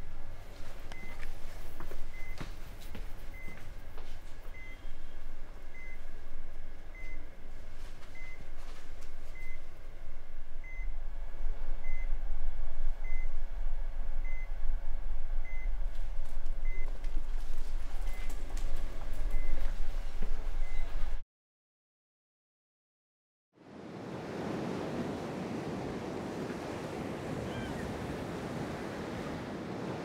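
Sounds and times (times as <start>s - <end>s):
low hum: 0.0s - 21.2s
patient monitor beeping: 3.3s - 7.4s, 8.1s - 8.6s, 17.8s - 19.8s.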